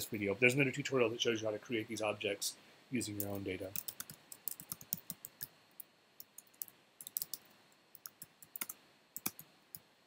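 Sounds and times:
keyboard typing clicks: 3.2 - 5.5, 6.2 - 9.8.

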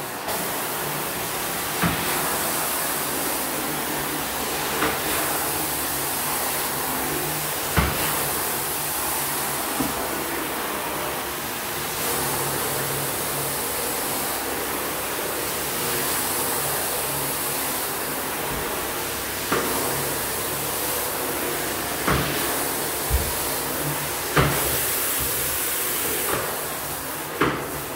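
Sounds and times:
vacuum motor hum: 0.0 - 27.9.

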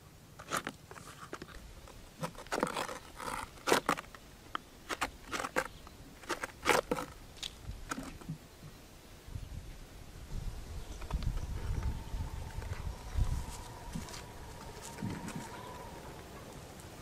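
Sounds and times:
knife scraping plastic: 0.4 - 4.2, 4.8 - 7.2.

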